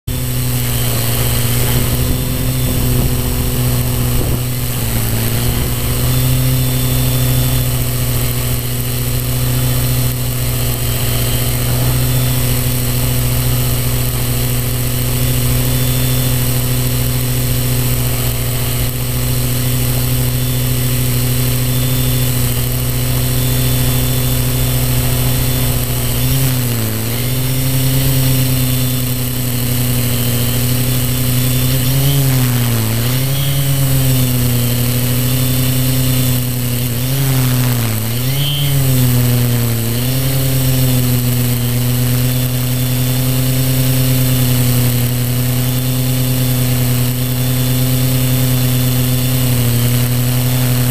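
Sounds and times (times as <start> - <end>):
drone propellers humming: 0.0 - 50.9.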